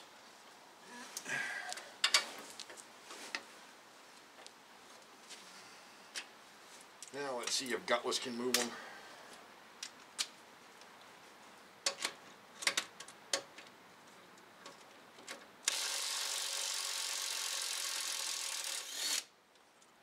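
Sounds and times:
cordless power wrench running: 15.7 - 19.3.

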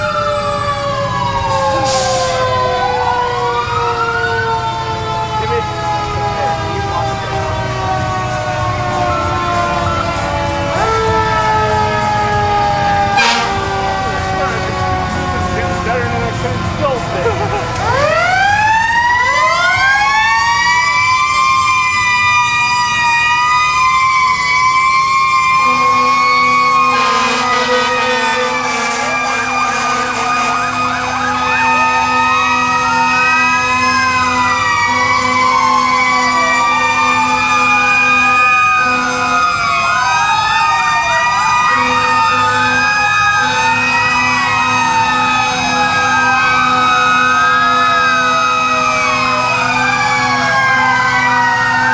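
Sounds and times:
fire truck sirens wailing: 0.0 - 51.9
low horn tone: 13.0 - 15.1, 25.6 - 30.7.

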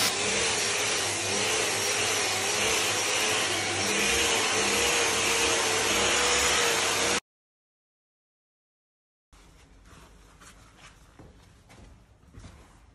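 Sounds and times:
orbital sander on wood: 0.0 - 7.2.

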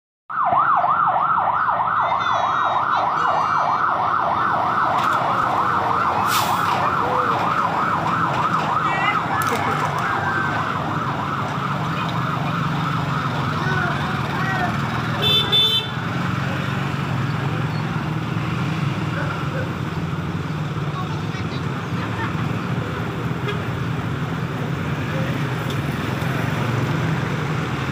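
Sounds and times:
fire truck siren yelping: 0.3 - 15.1
motorcycle engines rumbling: 0.6 - 27.9.

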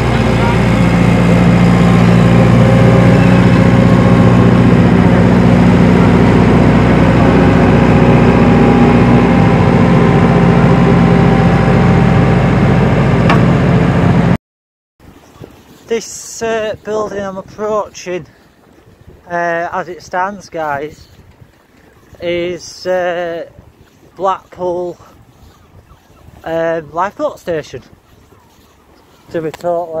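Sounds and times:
diesel engine droning: 0.0 - 14.4.

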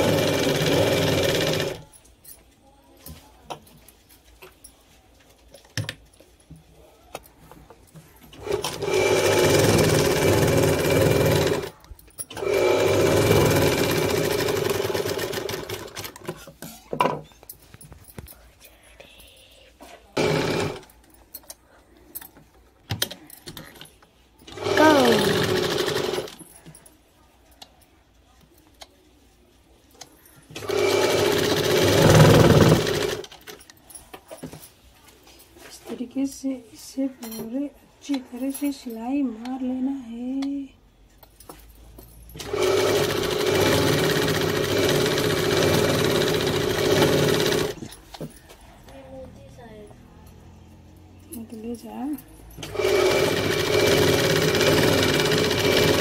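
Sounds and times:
sewing machine stitching: 0.0 - 1.9, 8.3 - 16.4, 20.2 - 20.9, 24.5 - 26.4, 30.5 - 33.6, 42.4 - 47.9, 52.6 - 56.0.

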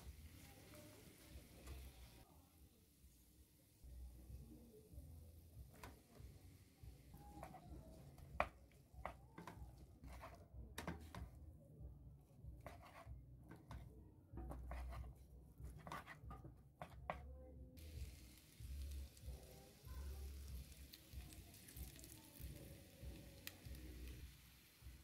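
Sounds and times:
spatula scraping frying pan: 9.4 - 11.3, 12.6 - 13.8, 14.5 - 15.1.

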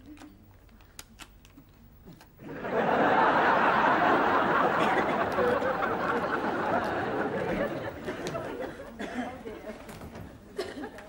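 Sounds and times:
studio audience laughing: 2.4 - 10.0.

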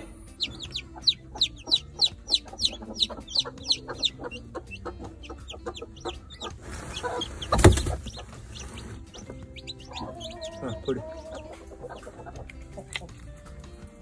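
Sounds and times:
chicks peeping: 0.0 - 14.0
rustling: 6.5 - 9.4.

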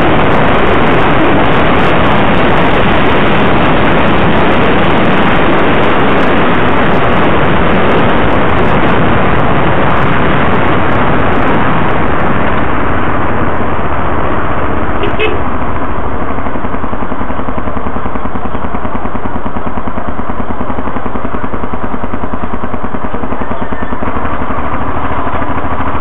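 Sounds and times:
wind rushing over microphone: 0.0 - 19.0.

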